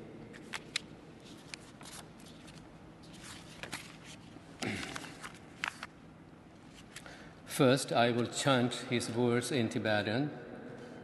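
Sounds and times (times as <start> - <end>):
paper rustling: 0.4 - 5.9.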